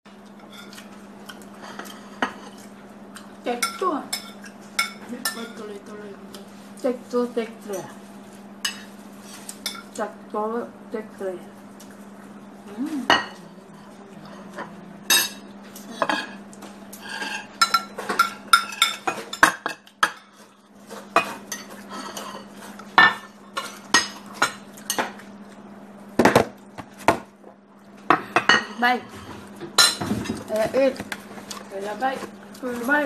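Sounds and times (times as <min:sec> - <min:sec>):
steady low hum: 0:00.1 - 0:33.0.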